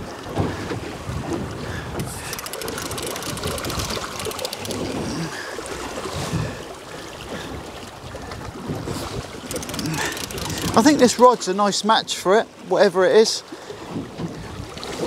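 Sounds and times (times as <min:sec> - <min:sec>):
waves slapping against boat hull: 0:00.0 - 0:12.7, 0:13.5 - 0:15.0
wind gusting: 0:08.6 - 0:11.4.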